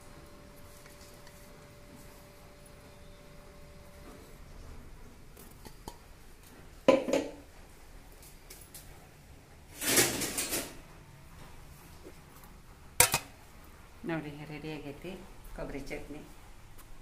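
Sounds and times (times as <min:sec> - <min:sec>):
steel scraping and clattering: 0:09.7 - 0:10.8.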